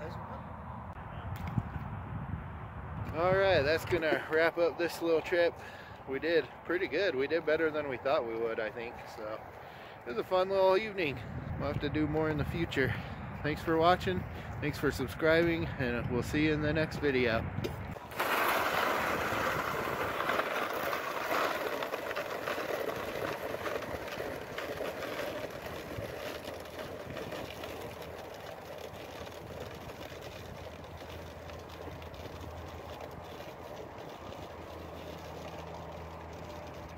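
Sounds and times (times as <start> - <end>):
sled scraping across snow: 18.0 - 36.9.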